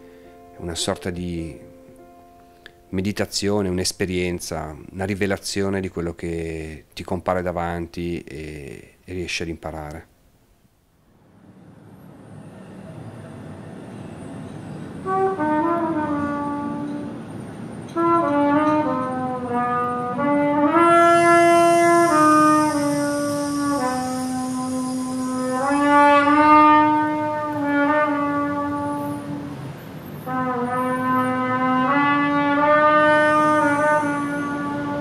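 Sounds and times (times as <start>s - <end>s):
solo trumpet slow melody: 0.0s - 2.9s, 11.4s - 35.0s.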